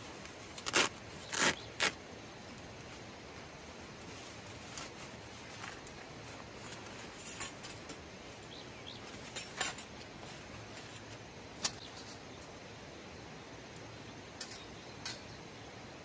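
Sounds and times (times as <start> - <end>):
metal fire stand clinking: 14.4 - 15.4.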